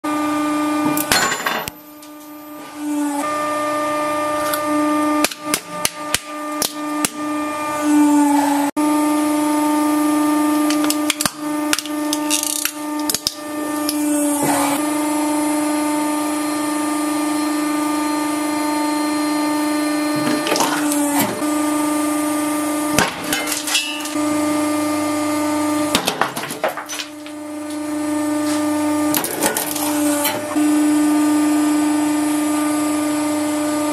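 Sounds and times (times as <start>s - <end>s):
hydraulic press whining: 0.6s - 33.9s
hard objects cracking: 5.2s - 7.2s, 10.6s - 14.0s.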